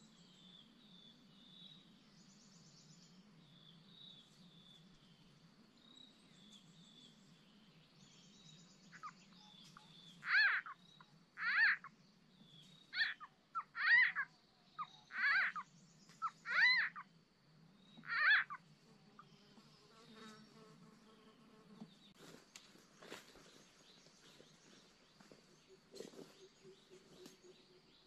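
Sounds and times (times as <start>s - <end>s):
faint high frog chirping: 8.9s - 12.0s, 12.8s - 17.2s, 17.8s - 19.3s.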